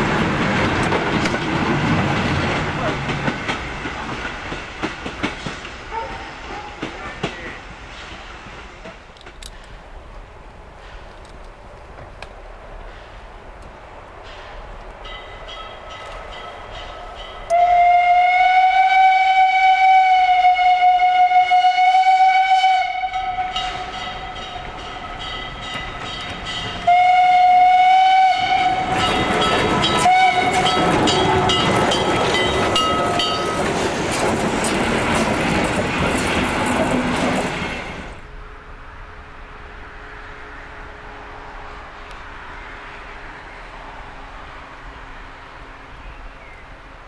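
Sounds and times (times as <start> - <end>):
locomotive clattering past: 0.0 - 9.4, 23.4 - 38.2
steam locomotive whistle: 17.4 - 25.4, 26.8 - 31.9.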